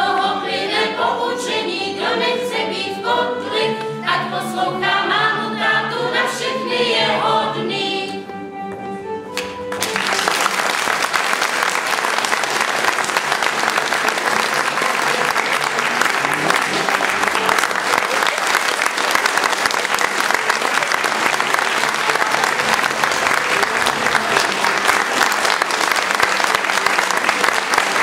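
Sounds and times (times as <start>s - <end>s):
crowd applauding: 9.4s - 28.0s.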